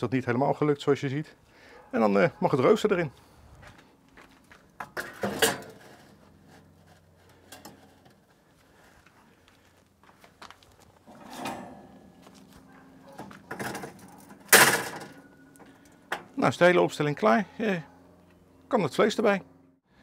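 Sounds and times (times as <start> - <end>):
metal grate clanking and scraping: 4.8 - 8.2, 11.0 - 12.3, 13.0 - 16.4.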